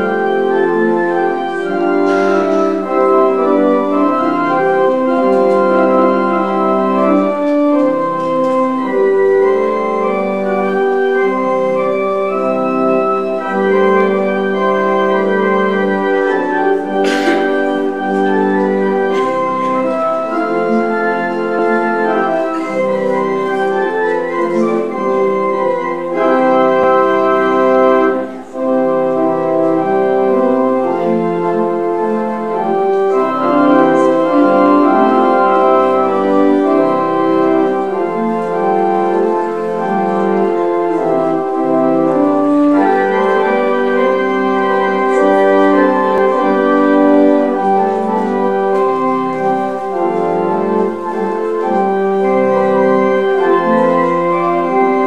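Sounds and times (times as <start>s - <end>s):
organ playing sustained chords: 0.0s - 55.0s.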